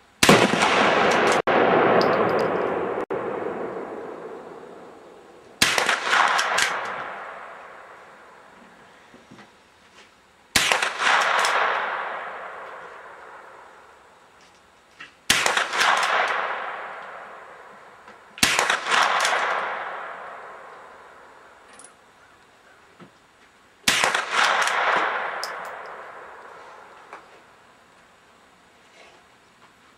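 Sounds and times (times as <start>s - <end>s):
rifle shots: 0.2s - 5.0s, 5.6s - 7.9s, 10.5s - 13.6s, 15.3s - 17.6s, 18.4s - 20.9s, 23.8s - 26.4s.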